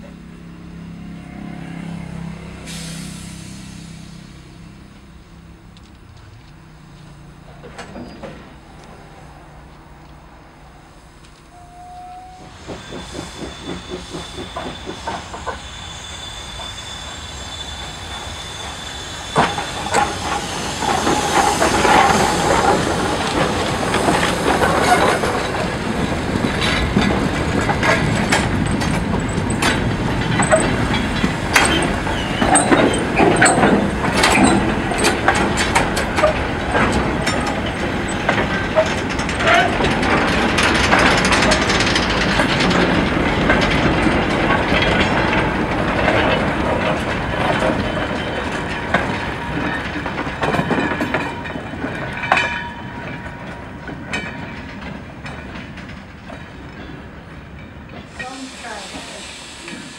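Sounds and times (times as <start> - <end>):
locomotive steam hissing: 1.6 - 5.6, 11.0 - 52.3, 56.9 - 59.9
train wheels clacking and clanking: 7.2 - 9.0, 11.2 - 59.9.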